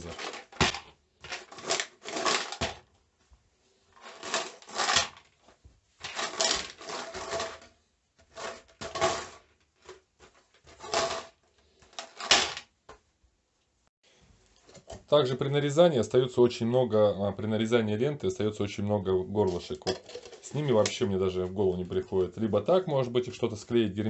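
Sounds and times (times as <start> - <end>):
bolts rattling in plastic container: 0.0 - 2.8, 19.5 - 21.1.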